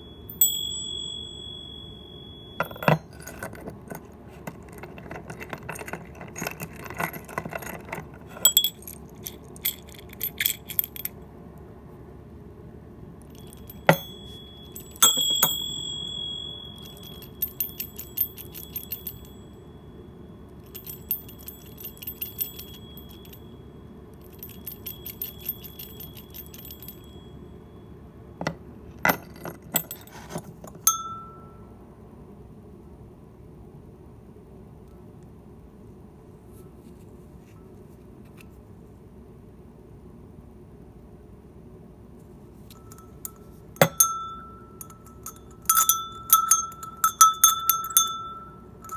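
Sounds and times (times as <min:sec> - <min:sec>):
bell clapper strikes: 0:00.0 - 0:03.0, 0:13.4 - 0:20.0, 0:42.8 - 0:48.9
high ringing tone: 0:00.0 - 0:03.6, 0:13.2 - 0:28.7, 0:30.8 - 0:31.8, 0:42.7 - 0:48.9.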